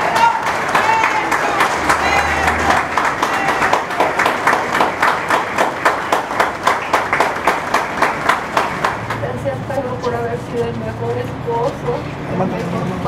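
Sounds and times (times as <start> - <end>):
crowd clapping in rhythm: 0.0 - 9.4.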